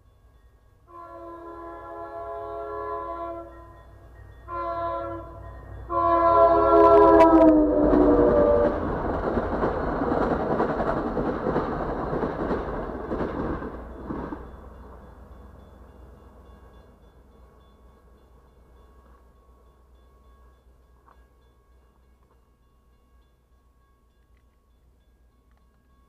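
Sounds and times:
train horn blasts: 0.9 - 8.9
train coaches rumbling and clattering: 3.5 - 26.0.

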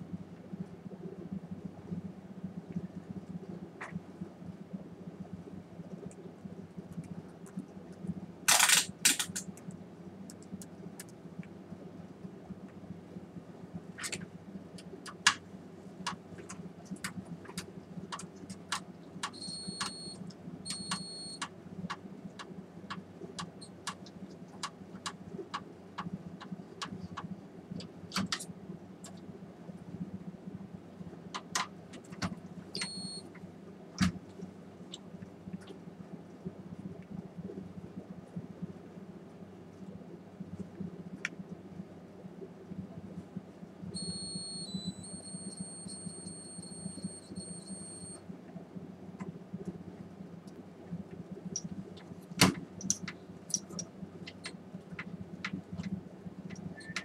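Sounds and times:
steady low hum: 0.0 - 57.0.

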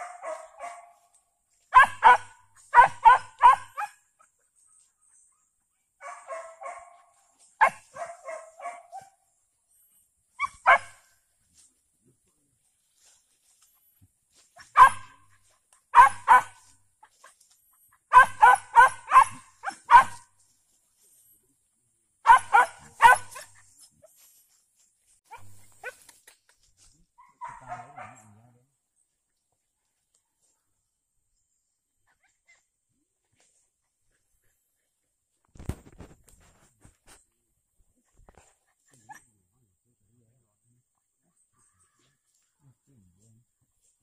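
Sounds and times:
young dogs barking and yipping: 0.0 - 9.2, 10.3 - 11.1, 14.4 - 20.4, 22.2 - 24.4, 25.3 - 26.6, 27.2 - 28.6, 32.0 - 32.7, 38.0 - 39.4
dog yelping: 1.7 - 4.0, 14.6 - 15.2, 16.0 - 16.7, 18.1 - 20.2, 22.3 - 24.1.

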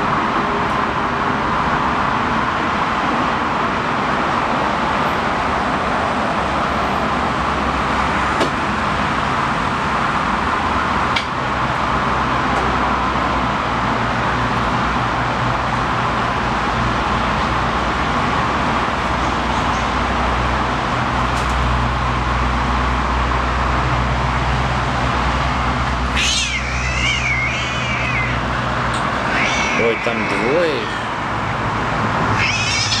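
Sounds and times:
road traffic hum: 0.0 - 33.0
cat yowling: 26.0 - 33.0.

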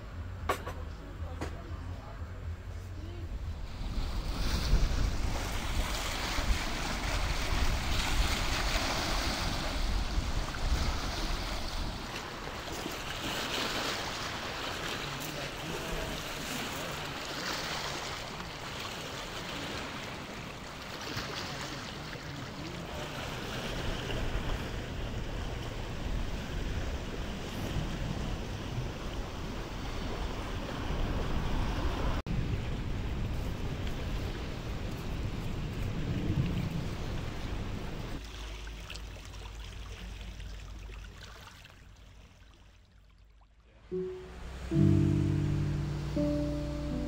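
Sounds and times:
wind rumble on microphone: 0.0 - 12.2, 23.6 - 38.2
waves washing on stony shore: 3.5 - 41.7.

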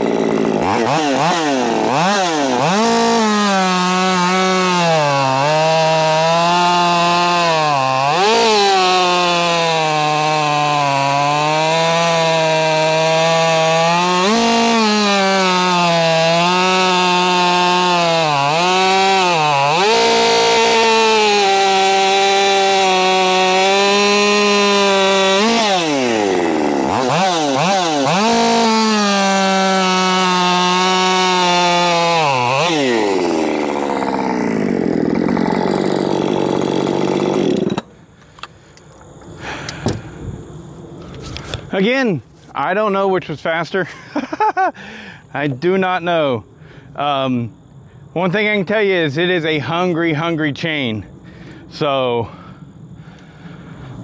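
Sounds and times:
chainsaw cutting log: 0.0 - 40.2.

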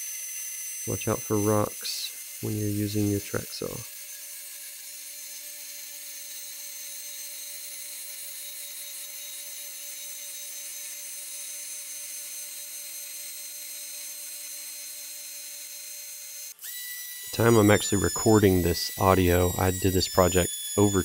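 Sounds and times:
track saw cutting wood: 0.0 - 21.0.

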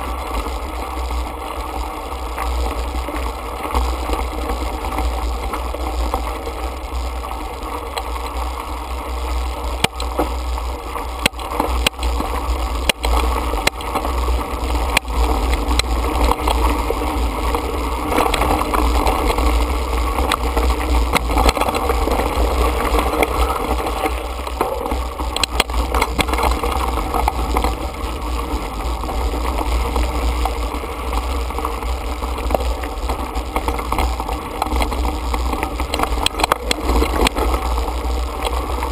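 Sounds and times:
bike clicks and rattles: 0.0 - 38.9
bike tyres on gravel: 0.0 - 38.9
wind rumble on microphone: 0.0 - 38.9.

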